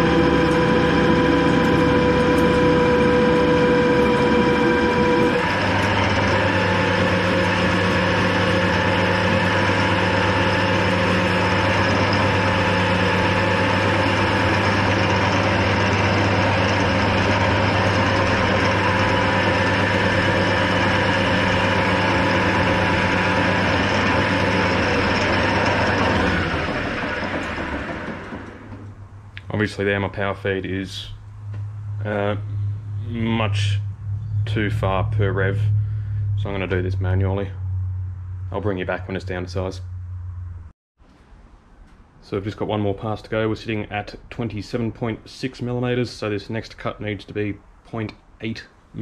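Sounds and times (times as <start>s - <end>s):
metal lathe humming and whining: 0.0s - 29.1s, 31.5s - 37.3s.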